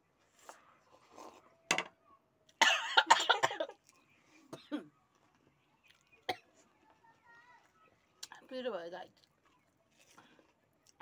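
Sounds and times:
person coughing harshly: 2.6s - 3.8s.

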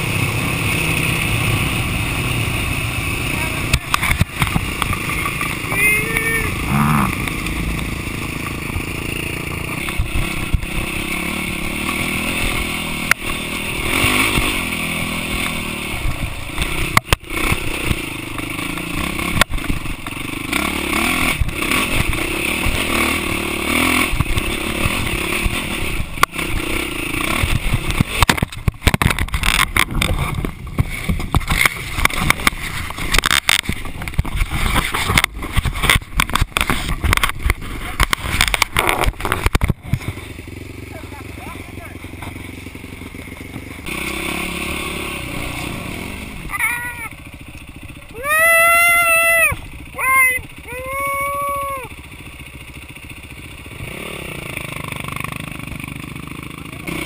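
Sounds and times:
motorbike engine running: 0.0s - 57.0s
bike knocking and rattling: 3.4s - 44.2s, 46.5s - 57.0s.

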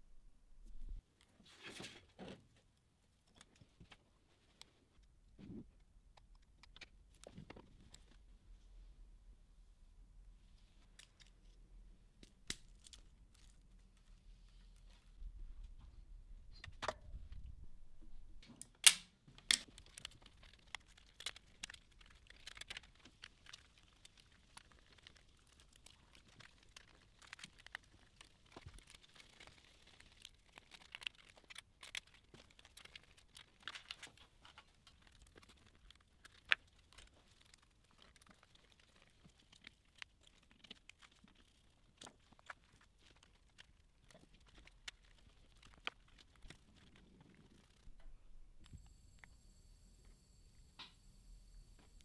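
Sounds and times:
wires rustling: 18.4s - 49.3s.

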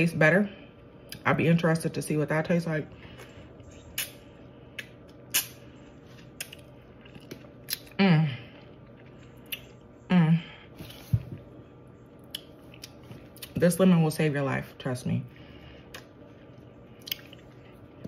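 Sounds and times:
wet mouth clicks and smacks: 3.9s - 4.2s, 4.8s - 5.6s.

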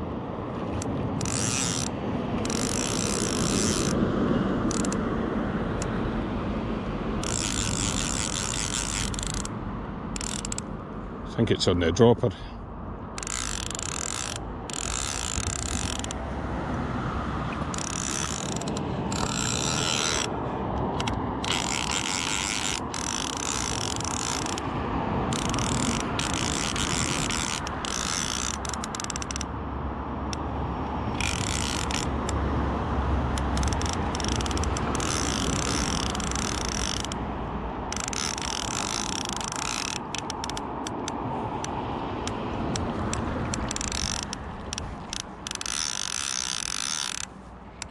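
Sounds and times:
fishing reel ratcheting: 0.7s - 4.0s, 4.6s - 5.0s, 7.2s - 9.5s, 10.1s - 10.7s, 13.1s - 16.2s, 17.7s - 29.5s, 31.1s - 32.4s, 33.4s - 37.2s, 37.9s - 47.9s.

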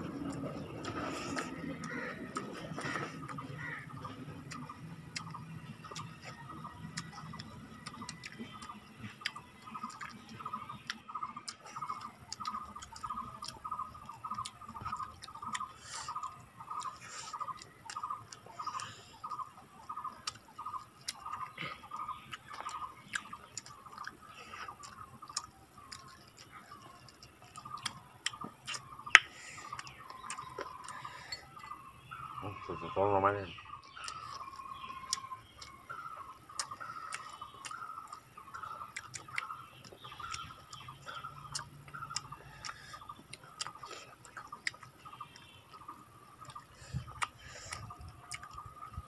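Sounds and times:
people chewing and lip smacking: 0.0s - 32.8s, 33.5s - 49.0s.

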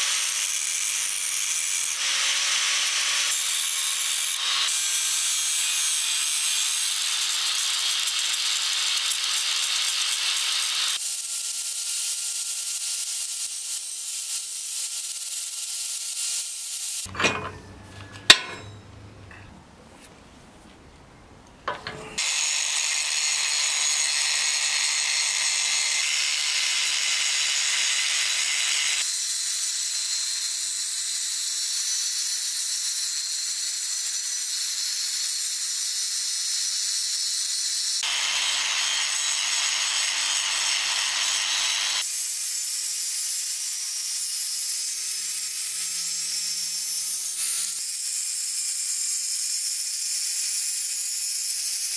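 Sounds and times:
angle grinder grinding steel: 0.0s - 18.9s, 21.7s - 51.9s.

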